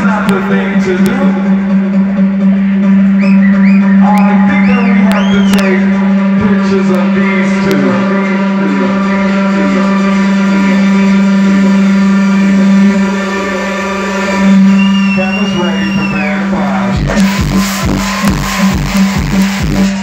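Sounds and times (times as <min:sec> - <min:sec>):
sustained synth drone: 0:00.0 - 0:20.0
kick drum beat: 0:17.0 - 0:20.0.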